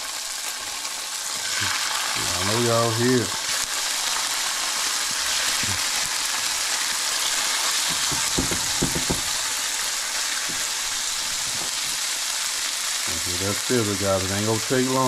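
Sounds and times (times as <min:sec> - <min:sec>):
fish sizzling in hot oil: 0:00.0 - 0:15.0
soft knocks: 0:07.9 - 0:09.4.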